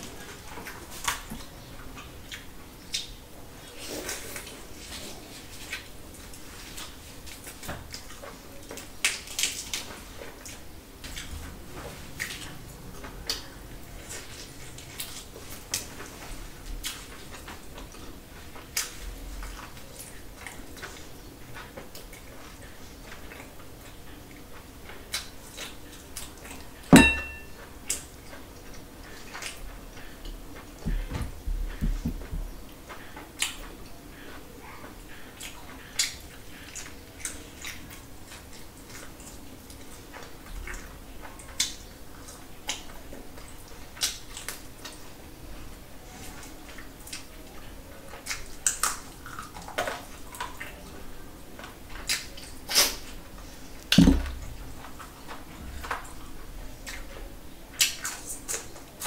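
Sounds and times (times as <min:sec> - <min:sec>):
chewing and wet mouth noises: 0:00.0 - 0:26.8, 0:27.7 - 0:45.2, 0:46.1 - 0:51.0, 0:51.6 - 0:59.0
dish clinking: 0:26.9 - 0:27.6
soft thumps: 0:27.0 - 0:27.5, 0:30.9 - 0:32.5, 0:54.0 - 0:54.5.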